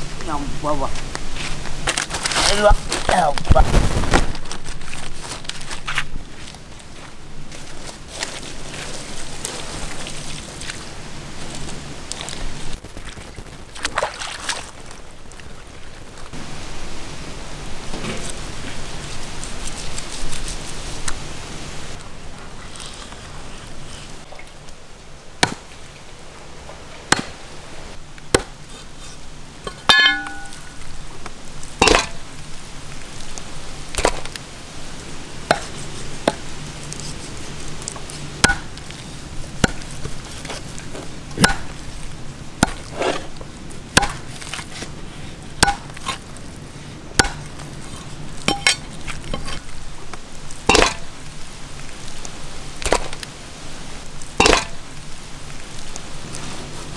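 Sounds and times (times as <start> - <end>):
cleaver chopping on wooden block: 38.4 - 38.7, 44.0 - 44.3, 47.2 - 47.5.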